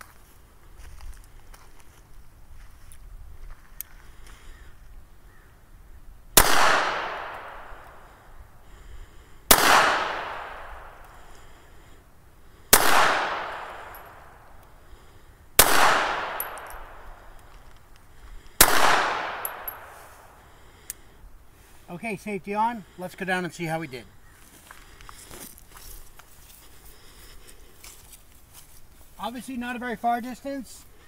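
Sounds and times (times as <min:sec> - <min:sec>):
pistol shots with echo: 0:06.4 - 0:08.1, 0:09.5 - 0:11.1, 0:12.7 - 0:14.5, 0:15.6 - 0:17.3, 0:18.6 - 0:20.2.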